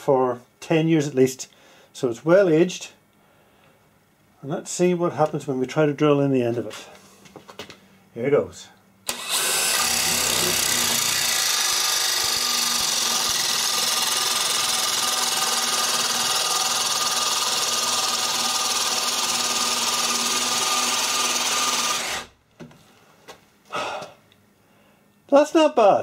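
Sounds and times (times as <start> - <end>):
cordless drill boring into wood: 9.1 - 22.4.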